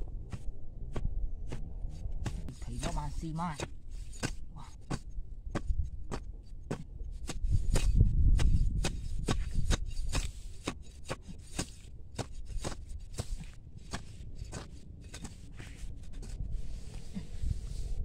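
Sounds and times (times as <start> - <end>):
low rumble: 0.0 - 10.6
machete scraping soil: 0.3 - 18.0.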